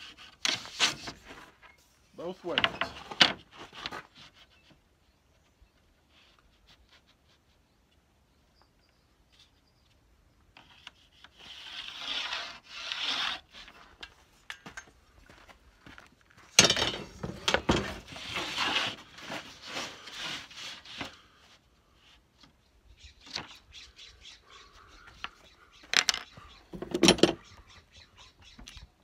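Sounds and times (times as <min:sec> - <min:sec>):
plywood boards scraping: 0:00.0 - 0:01.8, 0:02.5 - 0:04.8, 0:10.6 - 0:14.0, 0:16.6 - 0:21.5.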